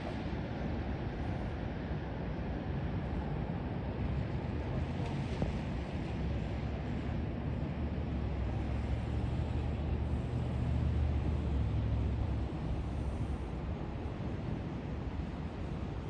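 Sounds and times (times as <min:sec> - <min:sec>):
vehicle engine rumble: 0:04.0 - 0:16.0.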